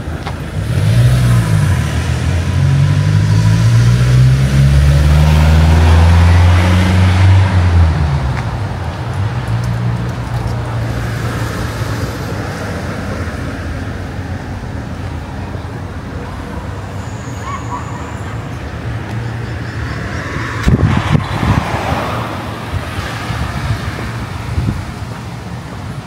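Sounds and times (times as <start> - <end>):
background traffic noise: 0.0 - 26.0
vehicle driving past: 0.8 - 8.3.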